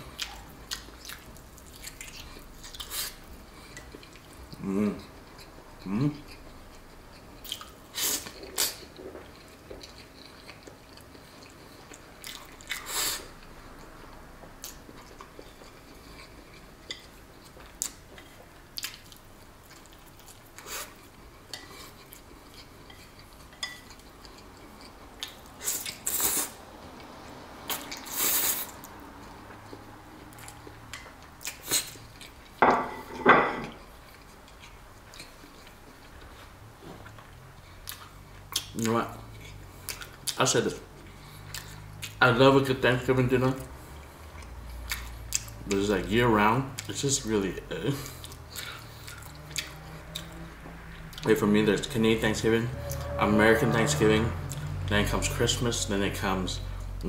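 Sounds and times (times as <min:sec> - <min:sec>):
chewing: 0:00.0 - 0:32.6, 0:33.7 - 0:42.2, 0:43.5 - 0:45.9, 0:46.7 - 0:47.0, 0:47.8 - 0:51.4
fork scraping a ceramic plate: 0:52.2 - 0:54.7.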